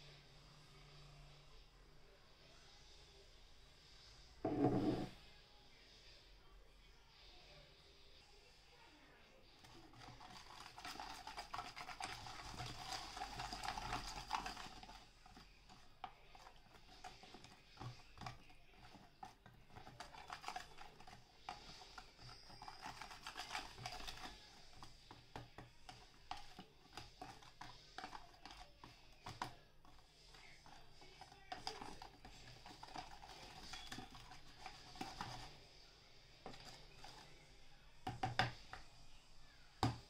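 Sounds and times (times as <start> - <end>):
whisk stirring in plastic tub: 9.4 - 40.0.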